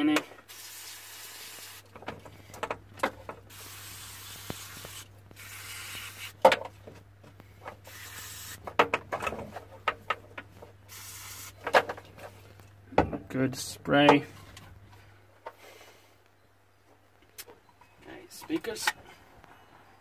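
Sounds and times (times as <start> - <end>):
aerosol spray hissing: 3.5 - 6.4, 7.8 - 8.7, 10.9 - 11.6.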